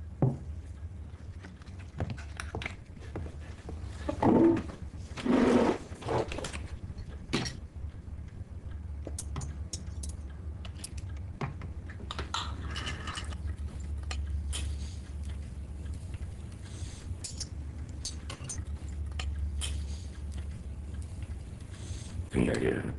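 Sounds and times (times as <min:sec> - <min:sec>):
steady low hum: 0:00.0 - 0:22.9.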